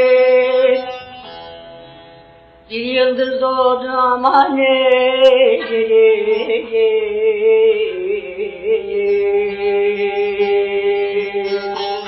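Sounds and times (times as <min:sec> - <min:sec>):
man singing folk song: 0:03.0 - 0:12.0.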